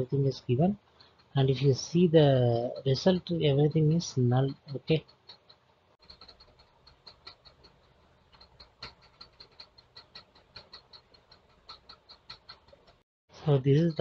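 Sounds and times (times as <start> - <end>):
computer keys typing: 0.0 - 13.0.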